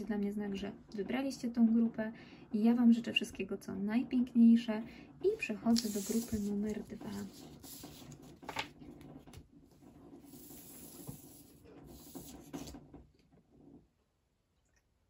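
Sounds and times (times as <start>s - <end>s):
cards rustling and sliding: 5.7s - 9.4s, 10.2s - 12.8s.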